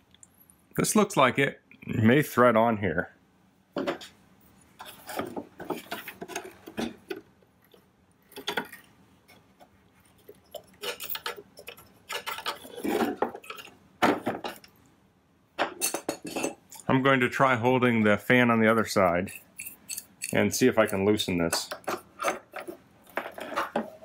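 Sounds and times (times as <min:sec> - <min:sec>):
plastic and metal parts clicking and rattling: 0:10.1 - 0:14.7, 0:21.4 - 0:24.0.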